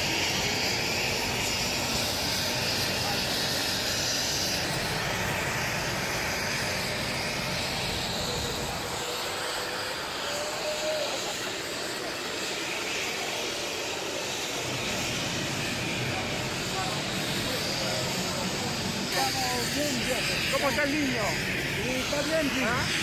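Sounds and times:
steady rushing noise: 0.0s - 23.0s.

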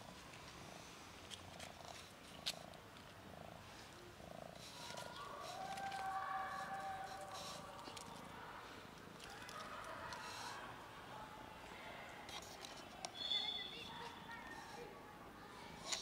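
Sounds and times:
cat purring: 0.7s - 6.0s.

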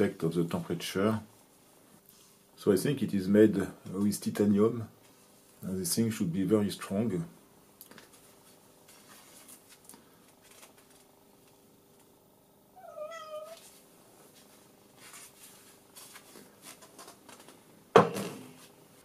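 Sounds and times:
cat meowing: 12.8s - 13.6s.

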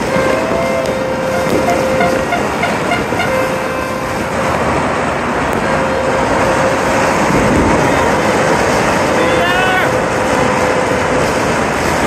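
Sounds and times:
distant fireworks and firecrackers: 0.0s - 9.2s
horns sounding: 0.0s - 11.0s.

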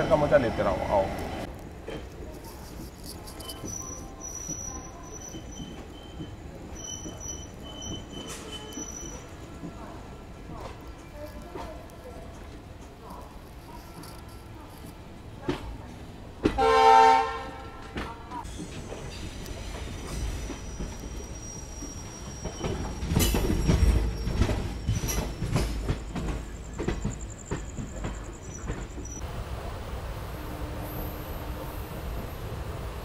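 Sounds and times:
train wheels clattering: 1.8s - 9.9s, 10.5s - 29.2s
train horn: 16.6s - 18.2s, 30.3s - 31.7s.

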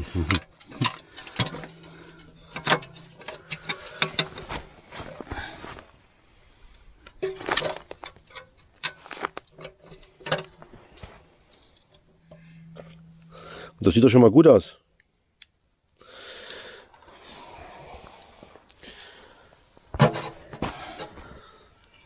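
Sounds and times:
metal parts clinking and clattering: 0.3s - 5.2s, 7.2s - 13.9s, 21.8s - 22.0s.

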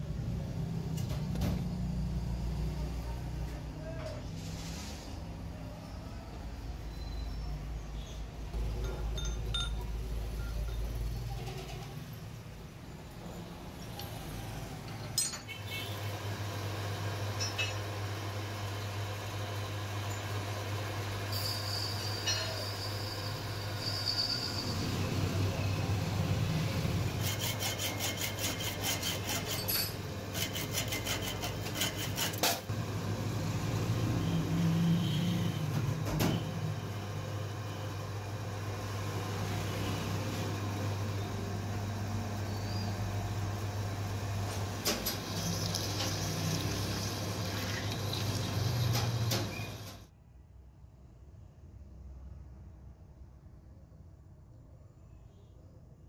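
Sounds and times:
metal scraping and clinks: 8.7s - 12.1s, 14.9s - 15.5s, 21.3s - 23.2s, 27.2s - 32.7s
metal lathe motor hum: 16.2s - 34.7s.

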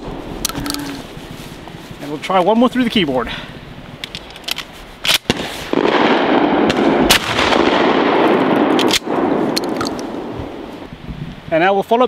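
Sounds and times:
shotgun pump racking clacks: 4.0s - 5.3s, 8.8s - 10.1s
shotgun firing: 5.1s - 10.3s.

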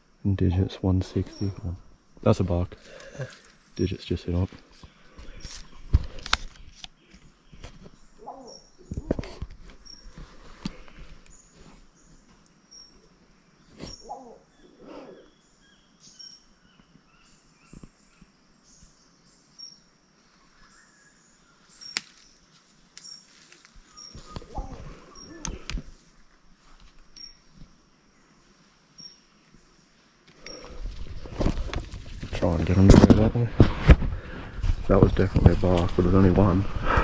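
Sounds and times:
bird high chirp: 8.2s - 8.9s
rustling: 8.9s - 12.5s, 21.7s - 27.8s, 28.4s - 37.0s.

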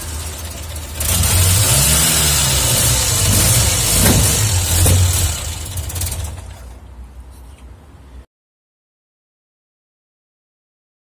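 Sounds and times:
car engine revving: 0.0s - 6.5s.

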